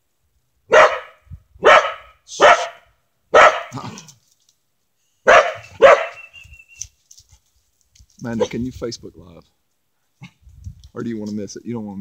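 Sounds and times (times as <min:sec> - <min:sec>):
dog barking: 0:00.7 - 0:03.8, 0:05.2 - 0:06.3.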